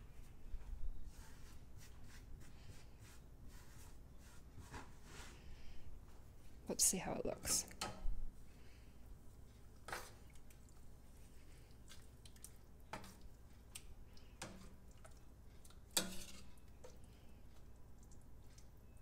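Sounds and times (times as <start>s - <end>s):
wet squishing of stirred sauce: 8.7s - 19.0s.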